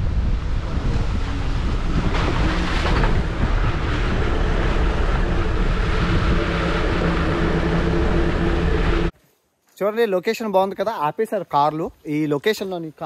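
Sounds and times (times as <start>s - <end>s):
vehicle engine rumble: 0.0s - 9.1s.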